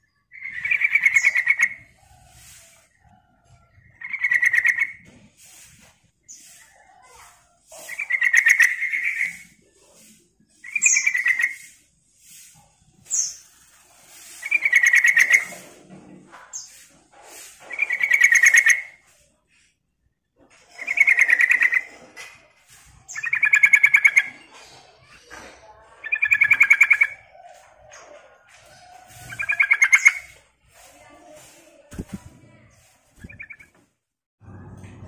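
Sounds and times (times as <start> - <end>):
bird singing chattering trills: 33.2 - 33.7.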